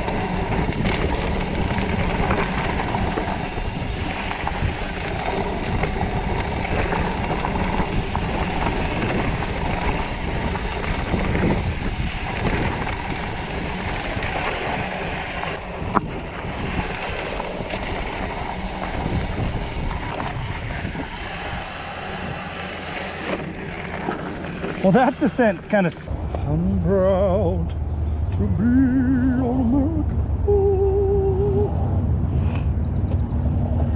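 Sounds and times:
bike tyres rattling over dirt: 0.0s - 26.1s
wind rushing over microphone: 0.0s - 33.9s.

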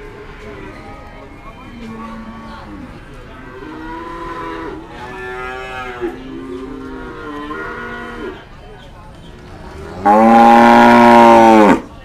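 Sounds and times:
cattle mooing: 9.9s - 11.8s.

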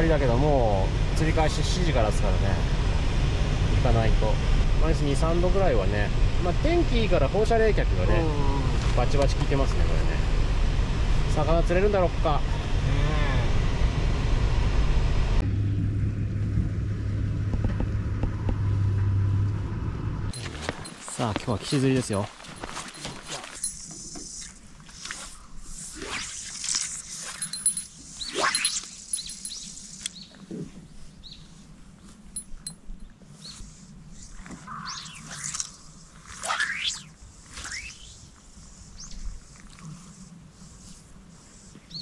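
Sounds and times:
road and engine rumble in car: 0.0s - 21.6s
steady low hum: 27.0s - 42.0s
birds whistling: 28.1s - 30.4s, 33.4s - 38.3s.

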